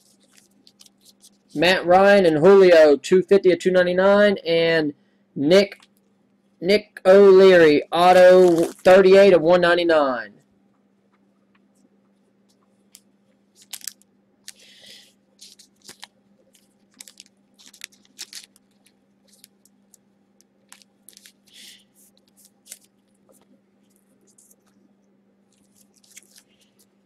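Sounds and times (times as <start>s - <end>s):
plastic card holders crinkling: 0.0s - 1.6s, 8.3s - 9.1s, 12.9s - 24.8s, 25.5s - 27.0s
faint steady hum: 0.0s - 27.0s.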